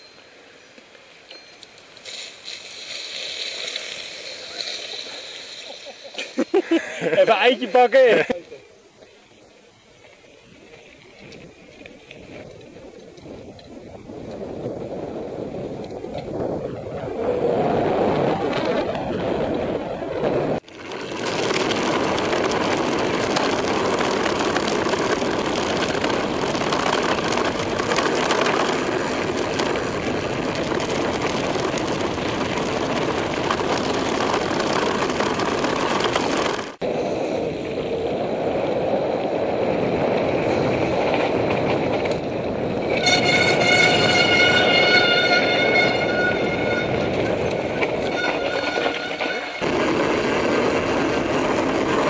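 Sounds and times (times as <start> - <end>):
bike rattling: 0.0 - 52.0
bike rolling noise: 0.0 - 52.0
brakes squealing: 0.0 - 52.0
tyres crunching on gravel: 1.8 - 9.2, 20.6 - 36.9
wind noise: 9.8 - 52.0.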